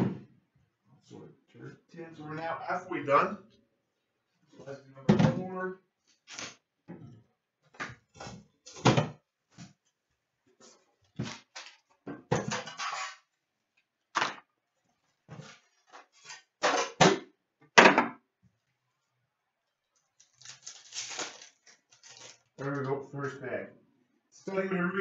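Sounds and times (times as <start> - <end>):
plastic wrap rustling: 20.0 - 23.4.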